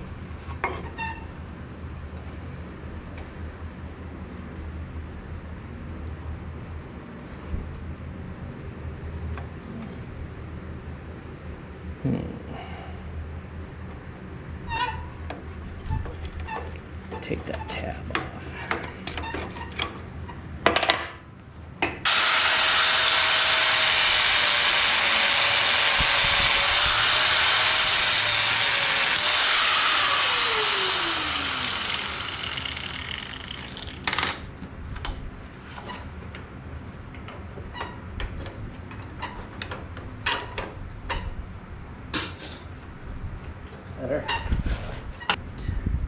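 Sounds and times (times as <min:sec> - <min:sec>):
angle grinder cutting steel: 0:22.1 - 0:34.2
grinder disc spinning down: 0:22.1 - 0:34.4.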